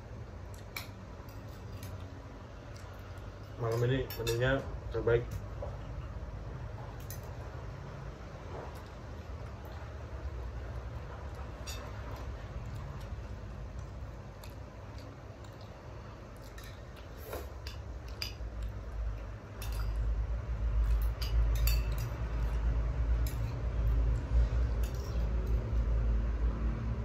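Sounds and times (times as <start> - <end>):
spoons clinking on ceramic plates: 3.6 - 4.6, 11.6 - 12.0, 19.6 - 20.1, 20.8 - 22.5.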